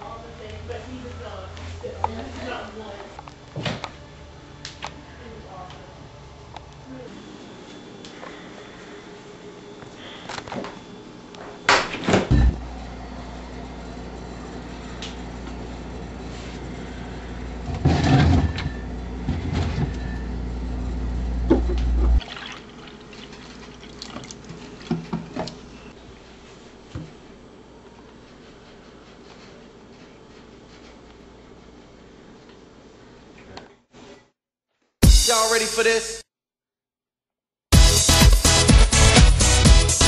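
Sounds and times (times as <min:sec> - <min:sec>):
steady low hum: 0:12.2 - 0:22.2
liquid pouring: 0:22.2 - 0:24.9.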